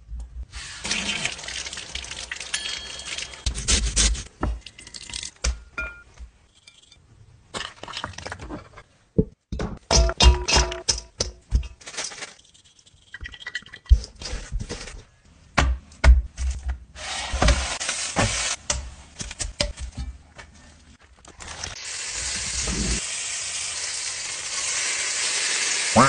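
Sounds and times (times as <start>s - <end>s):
meat sizzling in frying pan: 21.8s - 26.0s.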